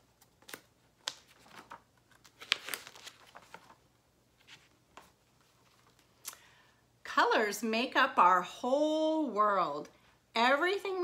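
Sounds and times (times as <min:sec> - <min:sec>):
book pages rustling: 0:00.0 - 0:06.2.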